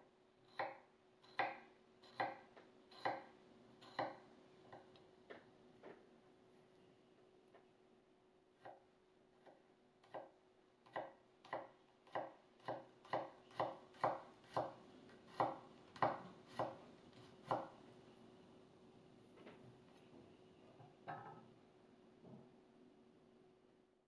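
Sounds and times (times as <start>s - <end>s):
knife chopping on wooden board: 10.9s - 16.8s.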